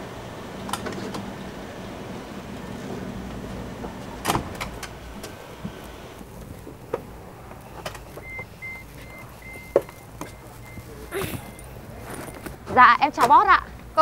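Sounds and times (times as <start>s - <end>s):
high beeps: 8.2s - 12.5s.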